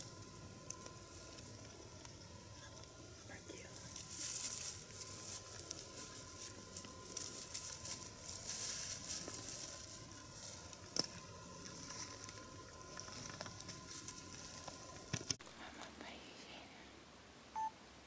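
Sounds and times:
dry leaves crackling and rustling: 2.6 - 15.2.

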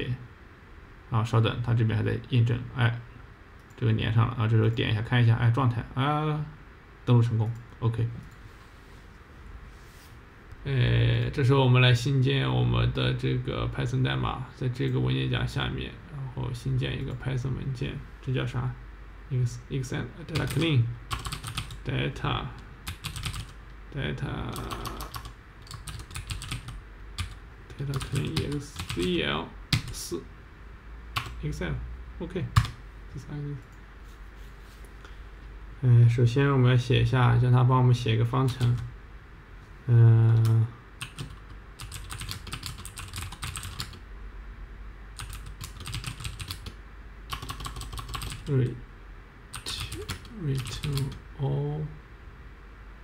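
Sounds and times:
typing on computer keyboard: 20.4 - 21.8, 22.9 - 23.6, 24.5 - 29.1, 40.4 - 44.0, 45.2 - 48.5, 49.6 - 51.2.

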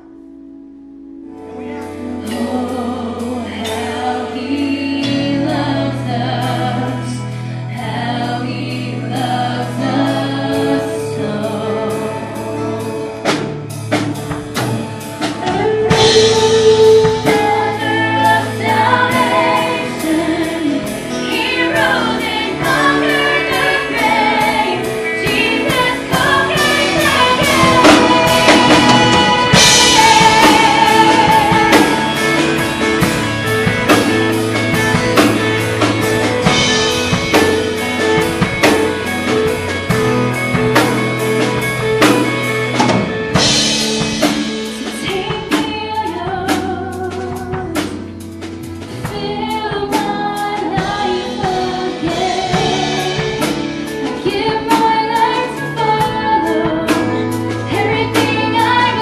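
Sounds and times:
guitar: 0.0 - 59.0
people singing: 2.2 - 13.6, 15.2 - 42.1, 48.9 - 59.0
drum kit beat: 9.1 - 59.0.

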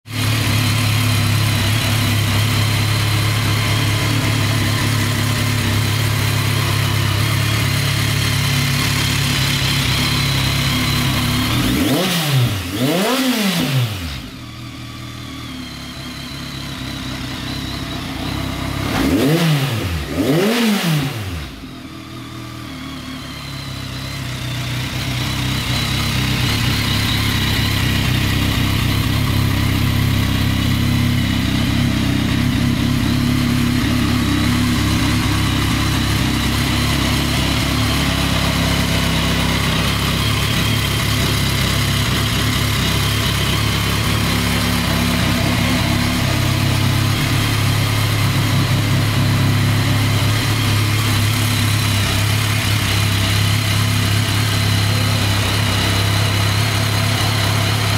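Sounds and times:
motorcycle engine idling and revving: 0.0 - 57.9.

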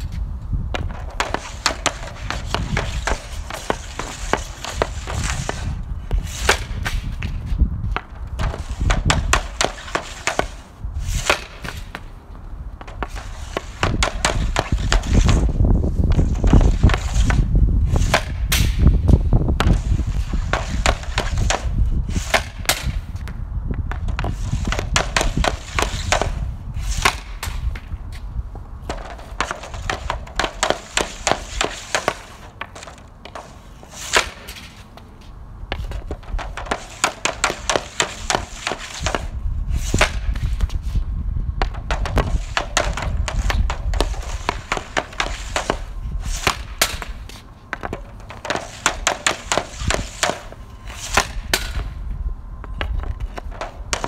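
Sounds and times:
hockey stick tapping puck: 0.7 - 18.9, 19.6 - 35.1, 35.7 - 40.8, 41.6 - 52.0, 52.6 - 54.0
puck shot crack: 0.7 - 28.2, 28.8 - 35.1, 35.7 - 40.8, 41.6 - 52.0, 52.7 - 54.0.

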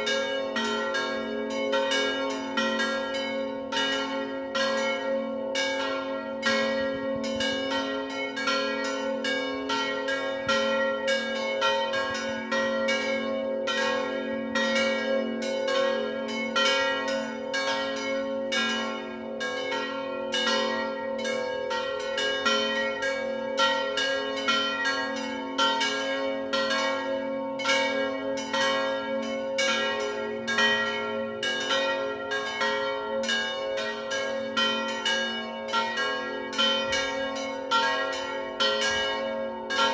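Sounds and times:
church bells ringing: 0.0 - 39.9.

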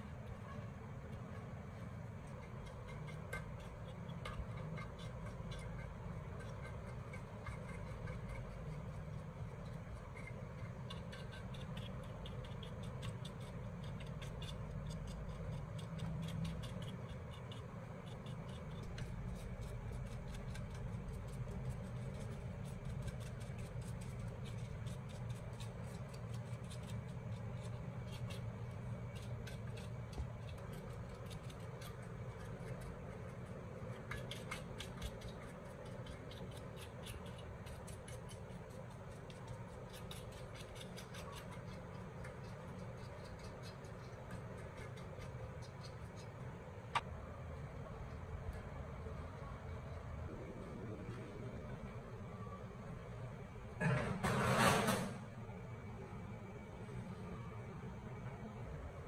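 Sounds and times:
paintbrush scrubbing metal and glass: 0.0 - 46.7
low hum: 42.9 - 54.3.

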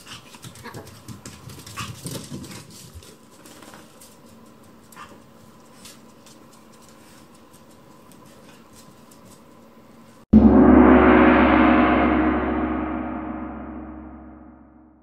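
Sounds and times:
gong struck ringing: 10.3 - 15.0.

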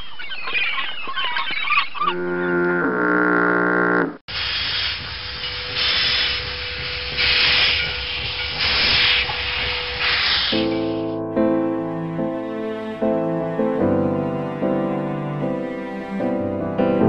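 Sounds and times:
steam hissing: 4.3 - 11.1
steam locomotive chuffs: 4.3 - 11.1
chord-like sound: 10.6 - 17.0.

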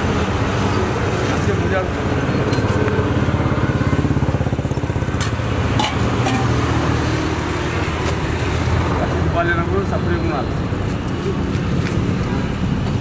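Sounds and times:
engine rumbling: 0.0 - 13.0
steel vessels clinking: 5.2 - 6.8.

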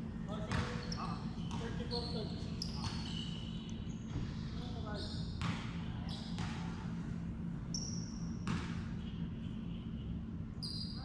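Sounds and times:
sneaker squeaks: 0.4 - 6.8, 7.6 - 9.1, 10.5 - 11.0
basketball bouncing: 0.5 - 0.8, 5.4 - 5.7, 6.4 - 6.7, 8.4 - 8.8.

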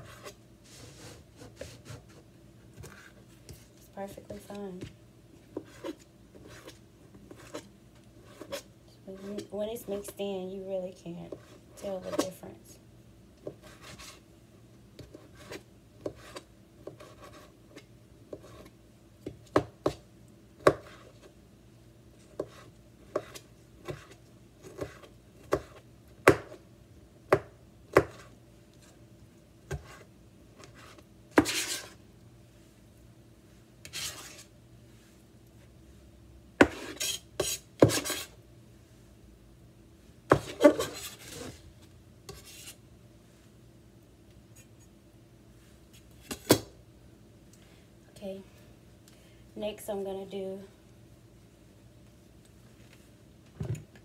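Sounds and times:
knife scraping on board: 29.7 - 32.0, 33.8 - 34.5, 36.6 - 38.4, 40.3 - 41.6, 42.3 - 42.8.

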